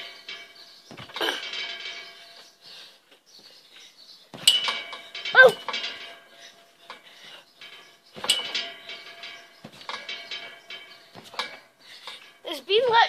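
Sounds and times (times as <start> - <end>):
trampoline springs jangling: 0.0 - 13.0
wavering yelp: 5.3 - 5.7.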